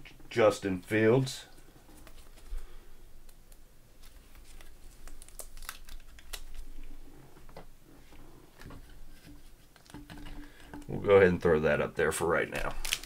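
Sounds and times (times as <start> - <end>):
plastic wrapper crinkling: 1.9 - 7.0, 12.6 - 13.0.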